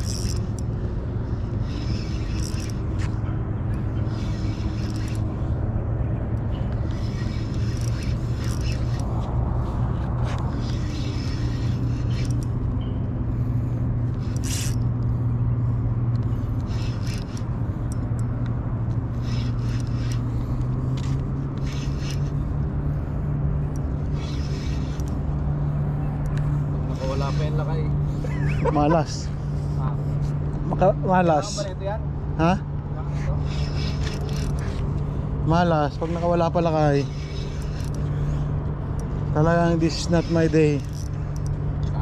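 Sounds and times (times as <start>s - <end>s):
low motor hum: 0.0s - 42.0s
short scrapes and clicks: 1.4s - 5.6s, 6.4s - 12.7s, 16.2s - 22.5s, 23.7s - 25.5s, 26.1s - 29.0s, 33.1s - 42.0s.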